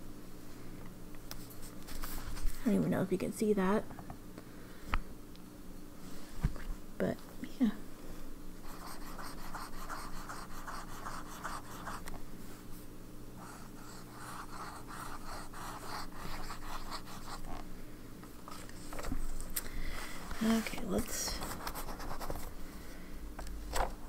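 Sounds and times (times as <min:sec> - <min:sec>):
pen nib scratching on paper: 0:08.6 - 0:12.1, 0:13.4 - 0:17.6.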